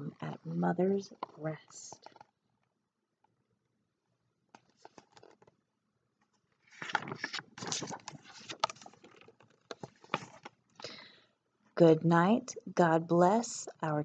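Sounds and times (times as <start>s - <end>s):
paper page rustling: 4.6s - 5.5s, 6.6s - 10.6s.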